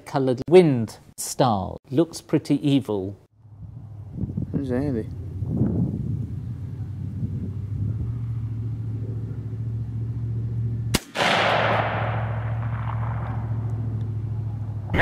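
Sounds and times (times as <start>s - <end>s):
steady low hum: 3.4s - 15.0s
gunshot with rolling echo: 10.9s - 14.0s.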